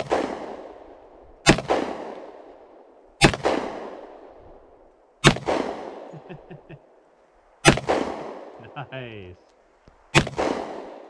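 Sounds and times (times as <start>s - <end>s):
pistol shots echoing: 0.0s - 2.6s, 3.2s - 4.3s, 5.2s - 6.1s, 7.6s - 8.6s, 10.2s - 11.0s.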